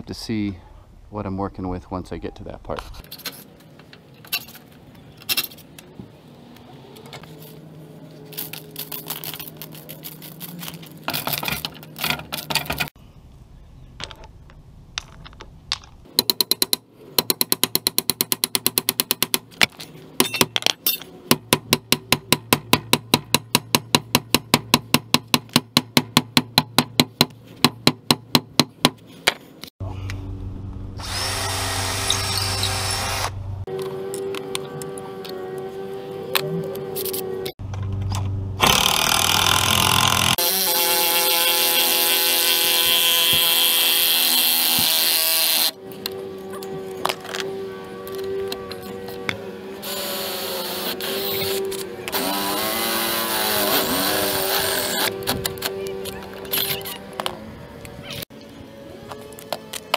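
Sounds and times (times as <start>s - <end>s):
drill motor running: 31.0s - 33.4s, 38.6s - 45.8s, 49.8s - 55.4s
power tool rattling strokes: 49.8s - 55.7s.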